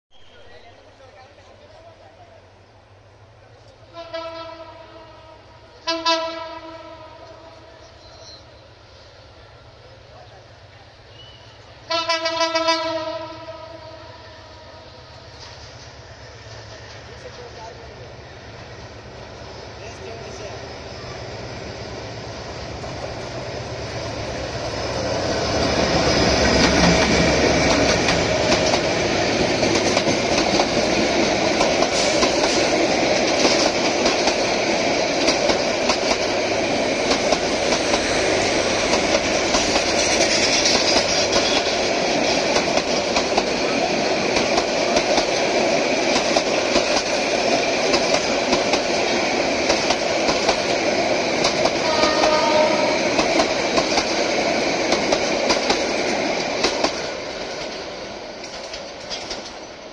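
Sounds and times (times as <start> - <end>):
diesel locomotive: 0.1 - 59.9
wheels rumbling on rails: 14.4 - 59.9
clickety-clack over rail joints: 25.6 - 59.9.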